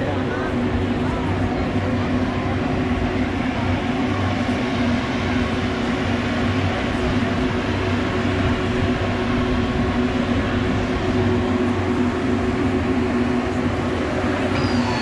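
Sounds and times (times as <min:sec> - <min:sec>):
steady machine-like hum: 0:00.0 - 0:15.0.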